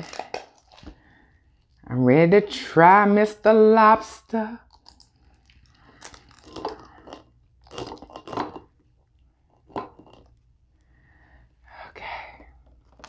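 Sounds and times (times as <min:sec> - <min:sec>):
meat tearing: 0:00.0 - 0:01.0, 0:04.7 - 0:08.6
lobster shell crackling: 0:00.0 - 0:01.8, 0:04.6 - 0:08.8.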